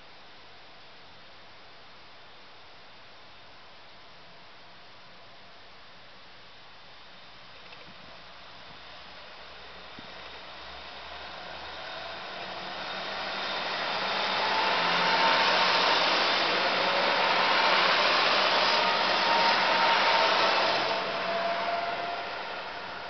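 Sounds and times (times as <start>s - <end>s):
diesel train passing: 9.6s - 23.0s.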